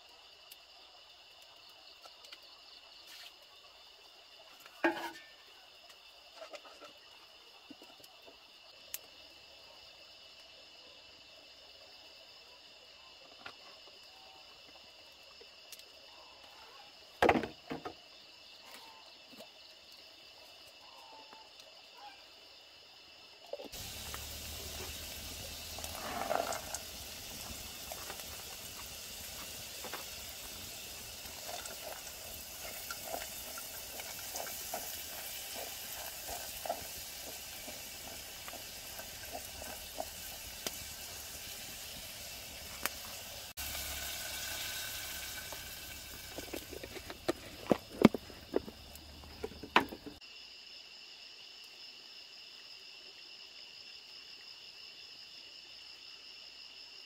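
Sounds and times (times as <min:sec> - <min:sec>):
high insect chorus: 0:00.0 - 0:57.0
liquid hissing and bubbling: 0:23.7 - 0:50.2
wood fire crackling: 0:23.7 - 0:50.2.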